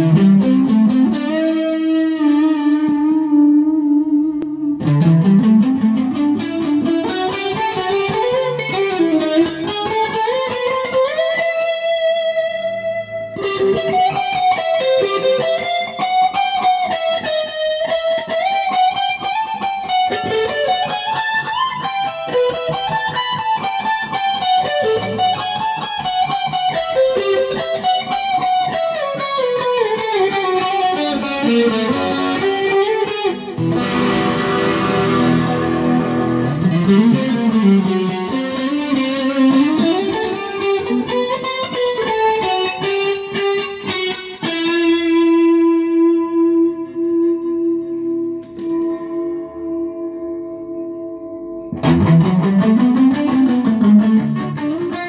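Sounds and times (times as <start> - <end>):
electric guitar lead line: 0.0 - 55.0.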